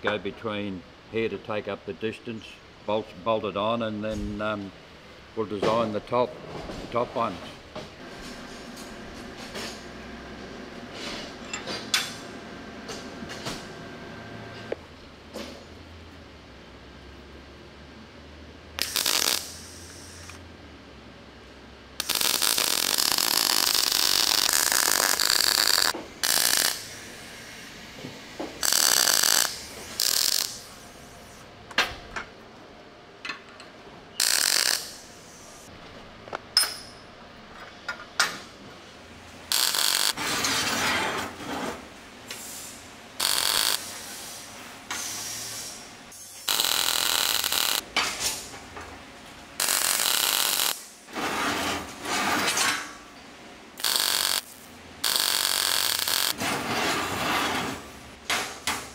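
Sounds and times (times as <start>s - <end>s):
power tool running: 22.0s - 27.0s, 28.6s - 30.7s, 34.2s - 35.0s, 39.5s - 40.2s, 43.2s - 43.9s, 46.4s - 47.8s, 49.6s - 50.8s, 53.8s - 56.4s.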